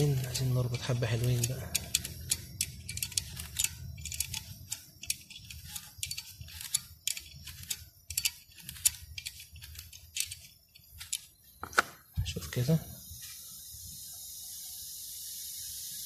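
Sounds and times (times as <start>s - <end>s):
wrench clicking on metal: 0.0s - 11.3s.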